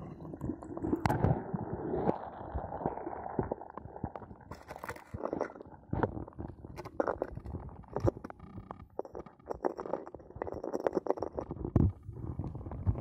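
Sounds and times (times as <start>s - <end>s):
muffled water sloshing and gurgling: 0.0s - 13.0s.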